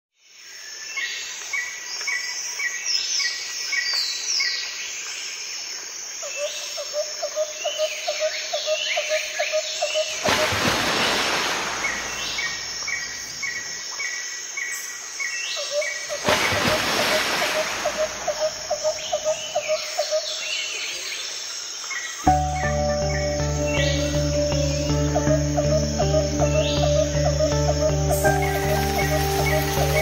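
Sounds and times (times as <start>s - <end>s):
insect calls: 0.3s - 30.0s
birds chirping and whistling: 22.3s - 30.0s.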